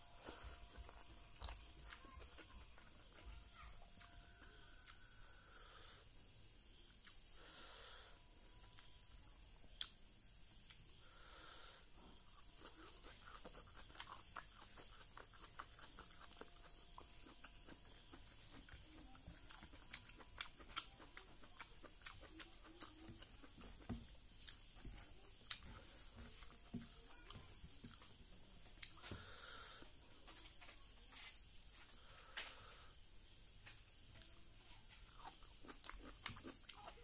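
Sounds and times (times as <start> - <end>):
faint high hiss: 4.7 - 13.0
wet chewing and lip-smacking: 7.0 - 7.2, 12.3 - 28.0, 35.0 - 37.0.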